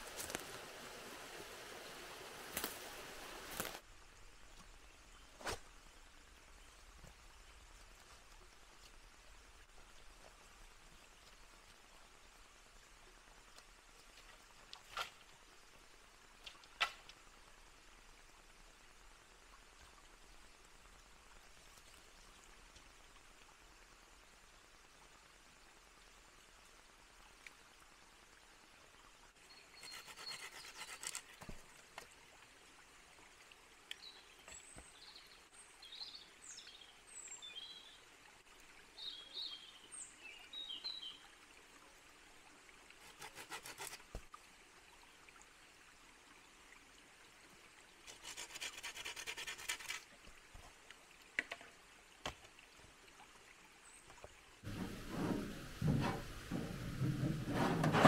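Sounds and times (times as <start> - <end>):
small birds chirping: 29.5 - 31.0.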